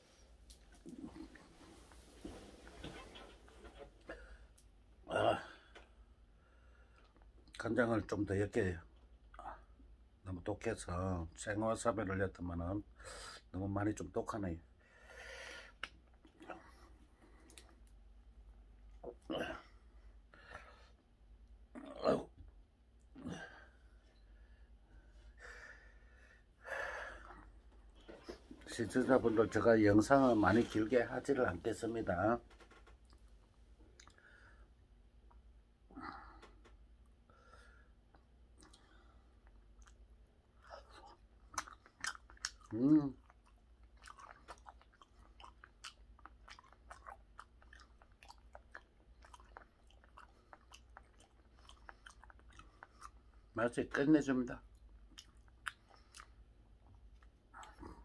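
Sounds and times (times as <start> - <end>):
man chewing with wet mouth clicks: 15.8 - 19.3, 33.9 - 34.2, 38.1 - 53.6, 54.6 - 58.0.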